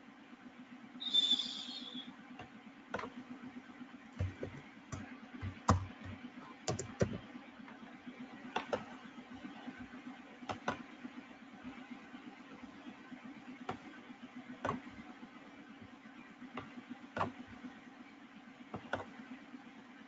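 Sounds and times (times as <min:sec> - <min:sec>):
faint low hum: 0:00.0 - 0:20.0
computer keyboard keystrokes: 0:04.2 - 0:07.3.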